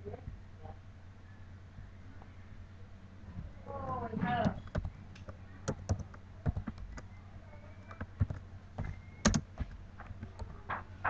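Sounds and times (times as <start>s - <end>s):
keyboard typing: 4.4s - 11.0s.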